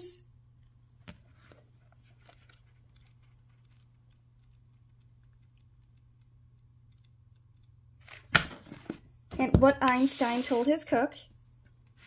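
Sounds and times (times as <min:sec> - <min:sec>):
book pages flipping: 0:01.0 - 0:05.6, 0:09.8 - 0:10.8.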